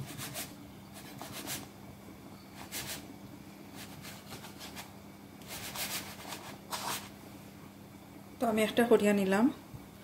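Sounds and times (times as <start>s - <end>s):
faint steady hum: 0.0s - 10.0s
hands rubbing pastry in dish: 3.7s - 7.1s.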